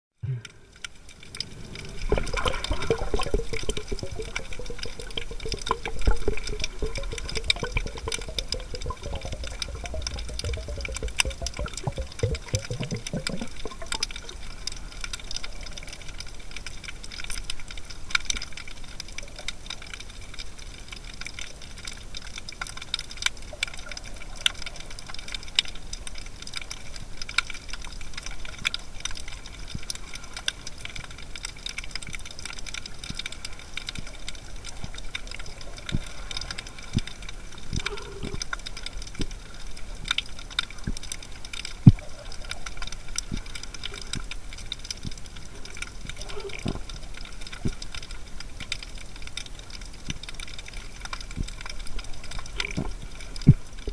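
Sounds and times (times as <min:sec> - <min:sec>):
low rumble with wavering tone: 0:00.2 - 0:14.2
underwater crackle of clicks: 0:00.3 - 0:53.9.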